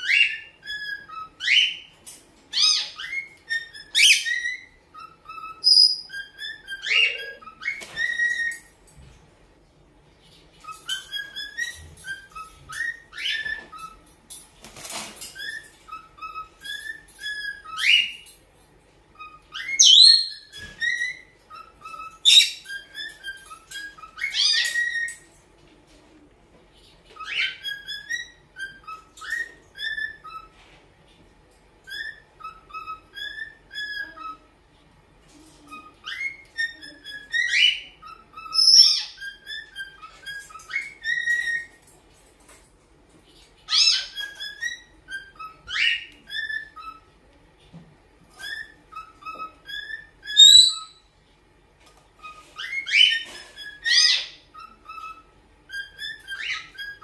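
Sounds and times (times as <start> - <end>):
cockatiel whistling: 0.0 - 1.9, 2.5 - 8.7, 10.6 - 14.0, 15.3 - 18.2, 19.2 - 25.2, 27.2 - 30.5, 31.8 - 34.4, 36.0 - 41.7, 43.7 - 47.0, 48.3 - 51.0, 52.2 - 57.0.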